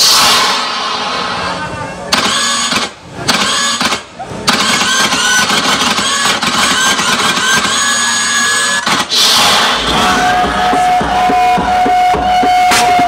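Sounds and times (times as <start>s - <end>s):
rushing burst of noise: 0.0s - 2.2s, 8.8s - 13.0s
dance music over speakers: 9.0s - 13.0s.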